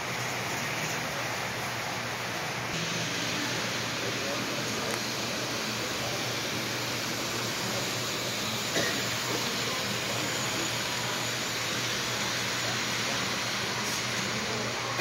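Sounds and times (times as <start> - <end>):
model train rolling on track: 0.3 - 15.0.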